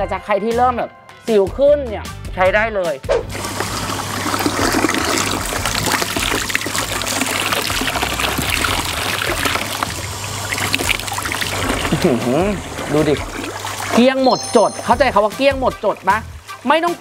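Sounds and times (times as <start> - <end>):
water splashing from a hose: 3.2 - 14.2.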